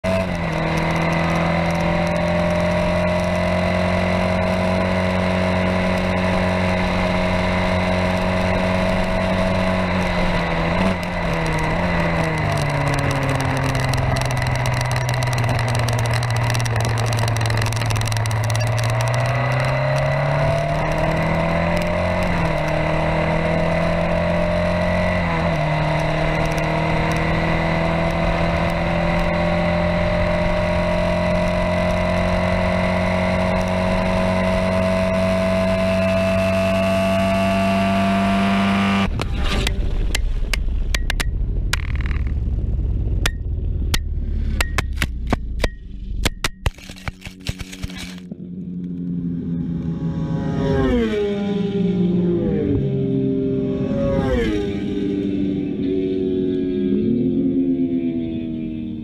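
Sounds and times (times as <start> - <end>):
race car engine revving: 0.0 - 40.1
gear upshifts: 0.1 - 37.3, 38.9 - 49.1
wind rush over camera: 39.0 - 45.6.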